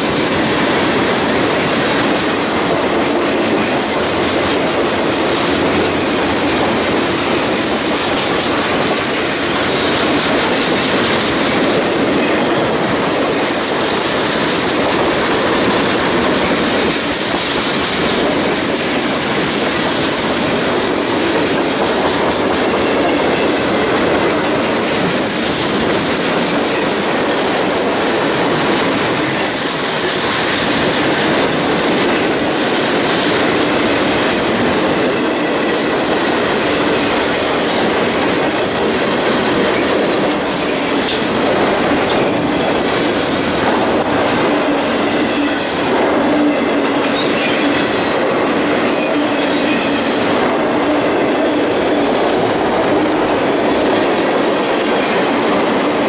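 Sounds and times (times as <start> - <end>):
train wheels running on rails: 0.0 - 56.0.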